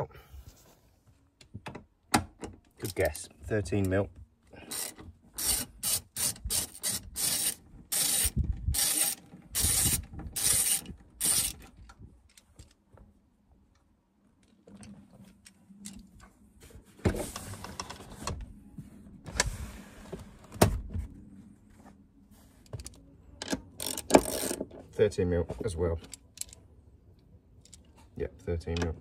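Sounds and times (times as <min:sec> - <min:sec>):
socket ratchet rasping: 0:04.7 - 0:11.6, 0:23.8 - 0:24.6.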